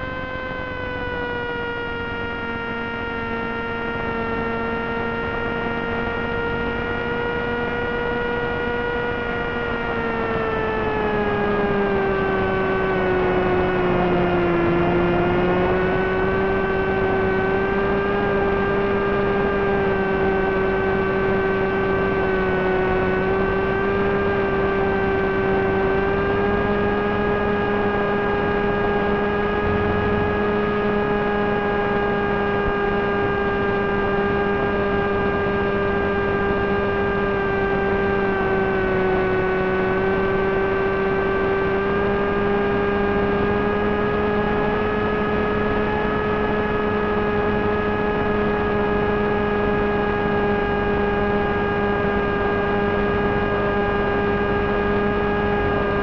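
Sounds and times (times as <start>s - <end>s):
electric motor and propeller droning: 0.0s - 56.0s.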